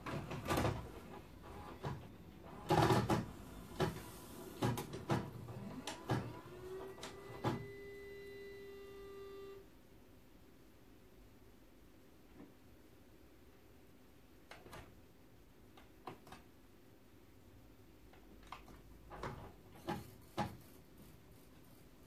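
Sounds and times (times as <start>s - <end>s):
mechanical clicks and clunks: 0.0s - 8.0s, 18.1s - 20.6s.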